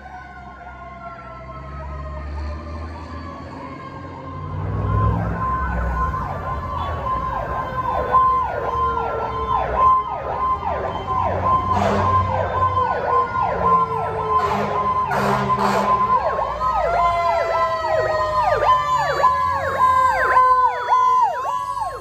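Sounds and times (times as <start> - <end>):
fire engine siren: 0.0 - 22.0
horn blast: 14.4 - 16.1.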